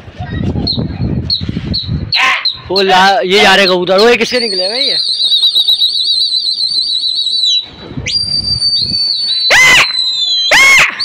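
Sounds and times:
shrill hand whistles: 4.3 - 11.0
shrill yells: 9.2 - 11.0.

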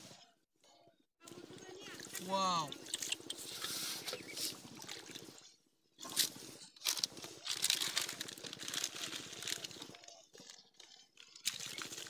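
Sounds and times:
plastic snack packet crinkling: 6.0 - 12.0.

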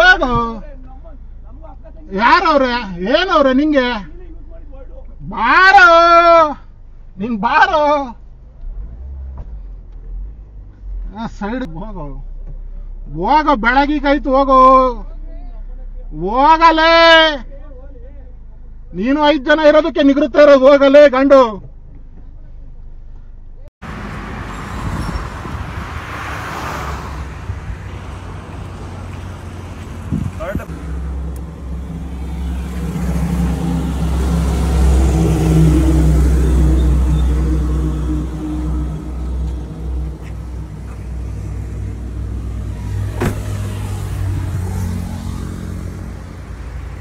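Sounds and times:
road traffic rumble: 0.0 - 19.8, 21.6 - 47.0
vehicle passing: 23.8 - 47.0.

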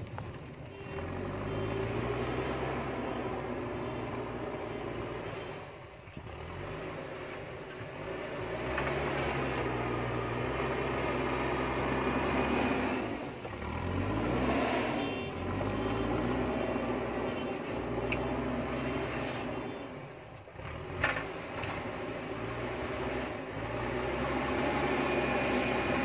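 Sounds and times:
diesel engine under load: 0.0 - 26.0
bucket pushing soil and stones: 6.1 - 17.1.

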